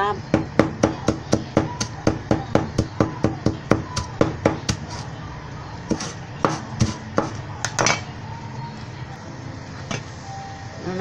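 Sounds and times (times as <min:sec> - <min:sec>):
knife chopping on wooden board: 0:00.3 - 0:05.1, 0:05.9 - 0:07.4.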